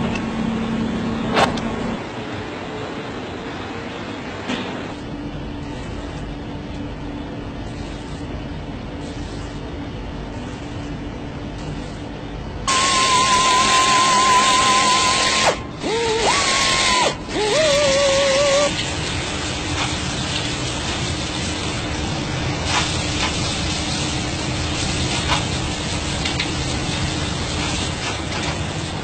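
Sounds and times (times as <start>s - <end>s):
small power tool whining: 12.7s - 18.7s.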